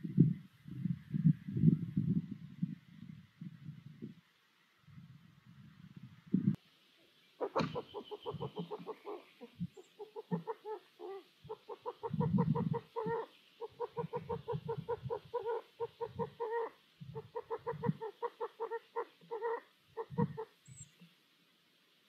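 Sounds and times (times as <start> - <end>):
owls clucking: 7.4 - 20.6.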